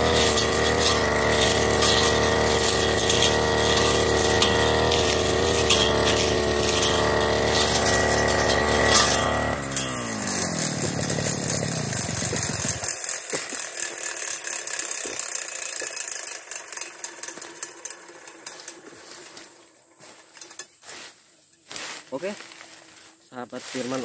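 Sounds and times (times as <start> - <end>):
brush cutter engine winding down: 0.0 - 20.4
dry grass rustling underfoot: 18.8 - 24.0.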